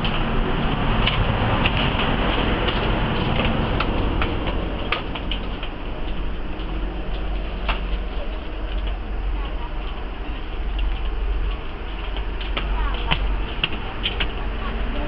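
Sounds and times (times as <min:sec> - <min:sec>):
train clicks and rattles: 0:00.0 - 0:15.0
train rumble and hiss: 0:00.0 - 0:15.0.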